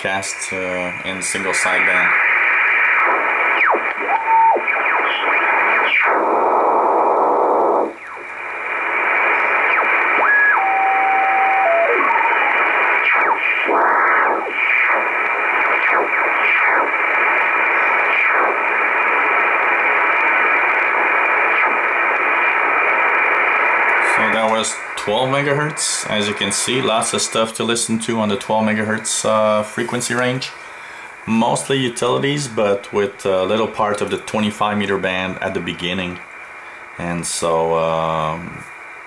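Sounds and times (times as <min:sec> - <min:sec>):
radio static hiss: 0:00.0 - 0:39.0
brief steady tones: 0:09.2 - 0:13.3.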